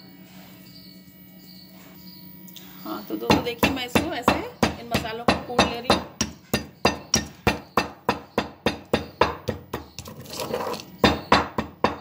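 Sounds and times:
pestle pounding in stone mortar: 0:03.3 - 0:12.0.

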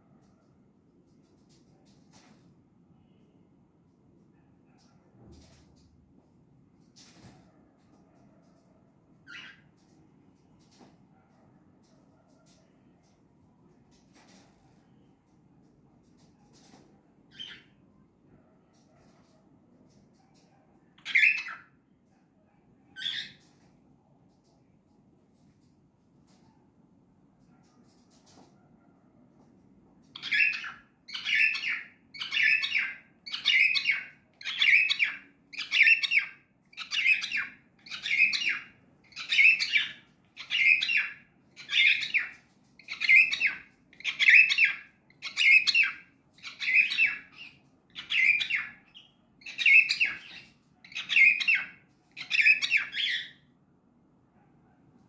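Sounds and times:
cockatiel chirping: 0:09.2 - 0:09.7, 0:17.3 - 0:17.8, 0:21.0 - 0:21.7, 0:23.0 - 0:23.5, 0:30.1 - 0:53.4.

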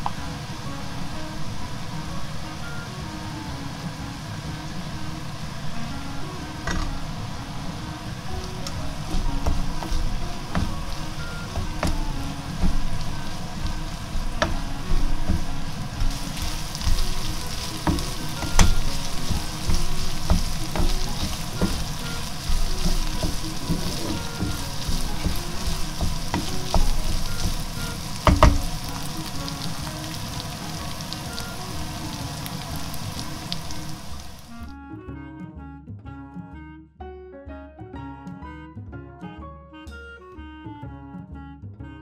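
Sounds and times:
meat sizzling in a frying pan: 0:00.0 - 0:34.7
spatula scraping a pan: 0:08.2 - 0:30.2
spatula knocking against pan: 0:08.5 - 0:28.9.

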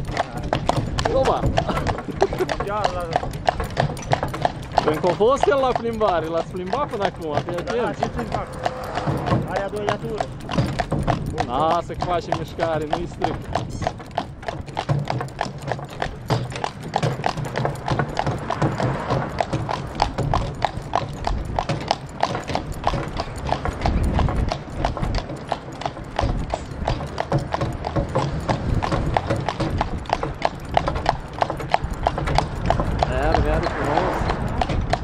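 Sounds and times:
horse hooves clip-clopping: 0:00.0 - 0:35.0.

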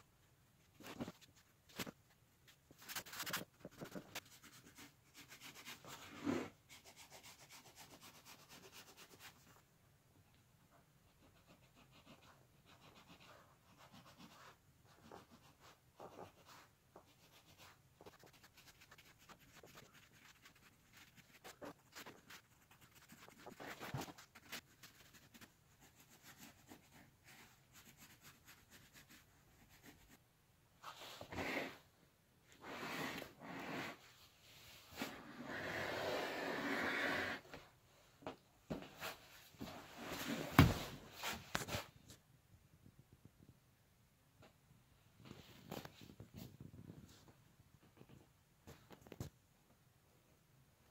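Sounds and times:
pencil scratching on tape: 0:11.1 - 0:30.2
hands rubbing taped surface: 0:16.1 - 0:25.5.

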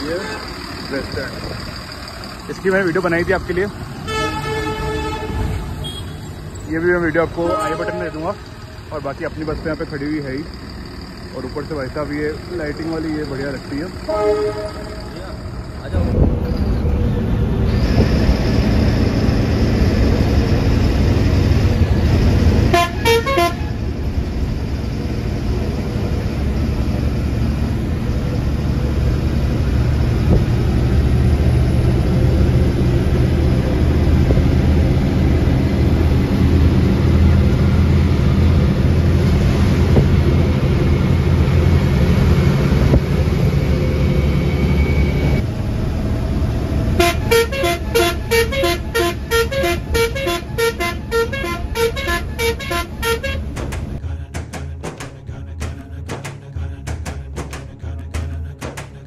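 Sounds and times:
bus engine and road rumble: 0:00.0 - 0:59.0
horn short beeps: 0:05.8 - 0:06.3.

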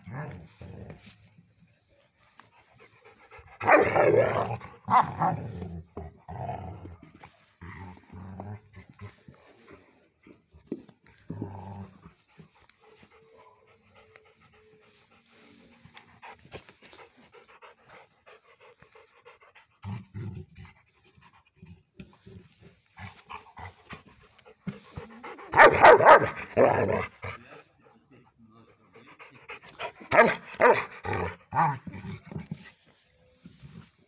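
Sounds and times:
dog panting: 0:02.4 - 0:03.6, 0:12.0 - 0:19.8, 0:20.6 - 0:28.0, 0:28.6 - 0:31.5.

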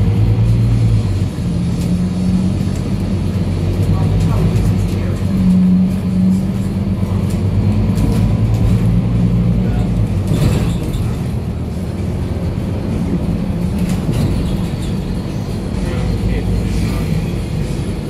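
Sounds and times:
bus diesel engine idling: 0:00.0 - 0:18.0.

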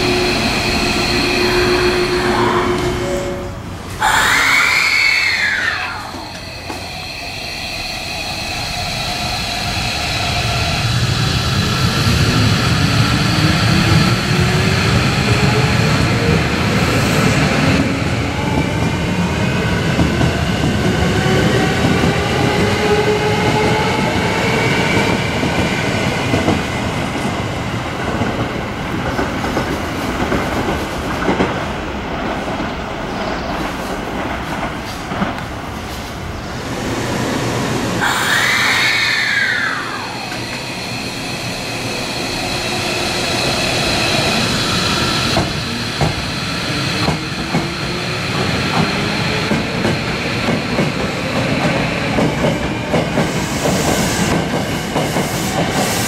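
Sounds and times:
electric train inverter whining: 0:00.0 - 0:18.7, 0:37.7 - 0:54.4.

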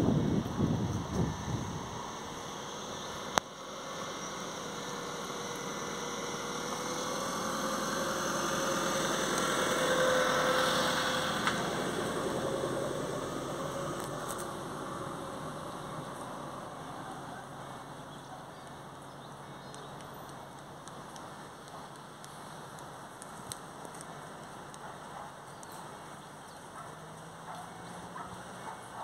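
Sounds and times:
vehicle engine passing by: 0:00.0 - 0:18.3.

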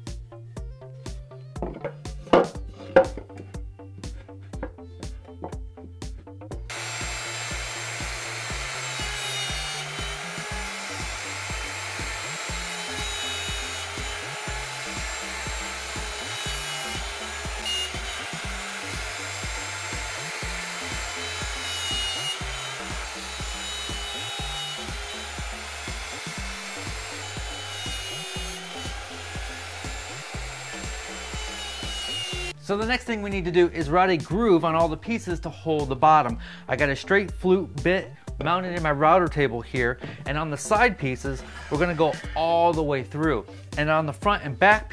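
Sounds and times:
background music with bass beat: 0:00.0 - 0:06.7
router cutting wood with high whine: 0:06.7 - 0:32.6.

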